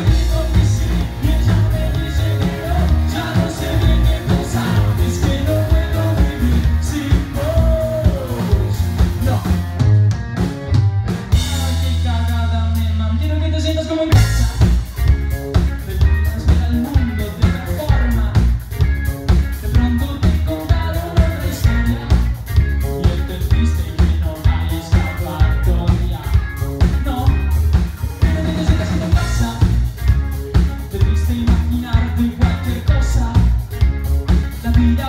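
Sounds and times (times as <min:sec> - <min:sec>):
man singing into microphone: 0:00.0 - 0:09.6, 0:11.4 - 0:14.8, 0:15.8 - 0:18.5, 0:19.6 - 0:22.3, 0:23.0 - 0:26.4, 0:28.2 - 0:29.8, 0:30.9 - 0:33.6, 0:34.6 - 0:35.0
live rock band playing: 0:00.0 - 0:35.0.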